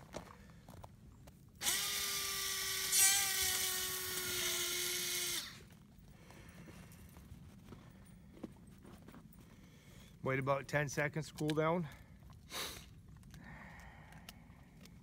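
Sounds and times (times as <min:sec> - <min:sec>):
tool motor whining with hiss: 0:01.6 - 0:05.6.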